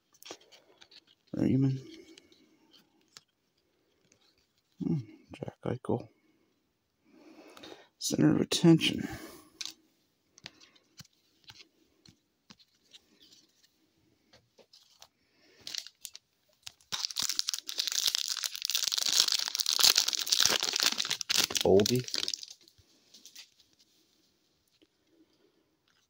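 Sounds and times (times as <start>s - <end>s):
foil pack tearing and crinkling: 15.7s - 22.6s.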